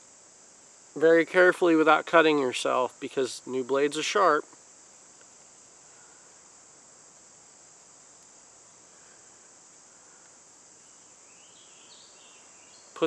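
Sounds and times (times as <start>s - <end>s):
high-pitched insect chorus: 0.0s - 13.0s.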